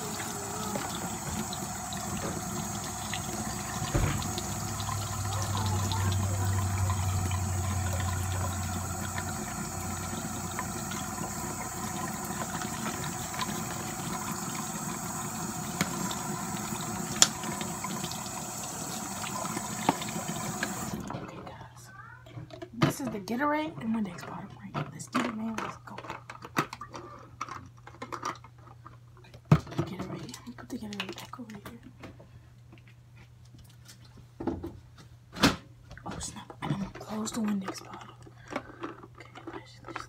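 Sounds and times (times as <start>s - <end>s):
hands rinsing under water: 0.0s - 21.0s
water running from faucet: 0.0s - 21.2s
sharp knocks: 3.8s - 4.5s.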